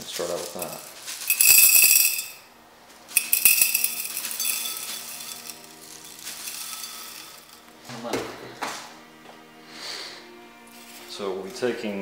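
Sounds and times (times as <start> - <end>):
crystals rattling into glass flask: 0.3 - 2.4, 3.2 - 7.7.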